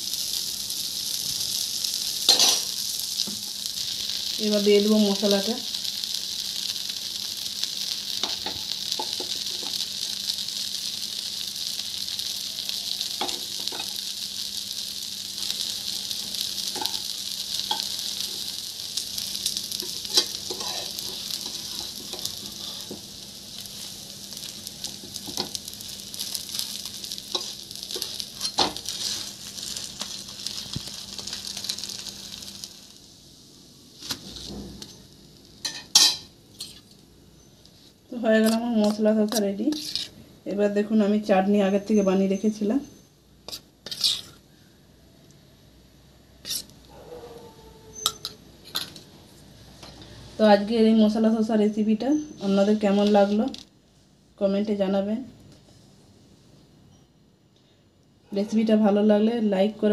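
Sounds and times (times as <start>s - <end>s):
batter sizzling on hot griddle: 0.0s - 44.8s, 45.5s - 54.3s
spatula scraping pan: 19.8s - 23.0s, 39.3s - 40.1s, 43.5s - 44.4s, 46.4s - 46.7s.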